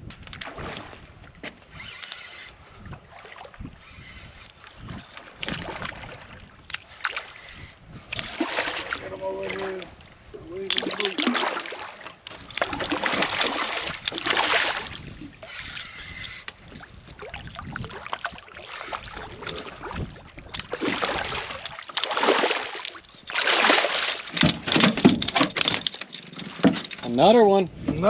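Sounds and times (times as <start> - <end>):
fish splashing in water: 8.2 - 9.7, 10.7 - 15.4, 17.2 - 24.4.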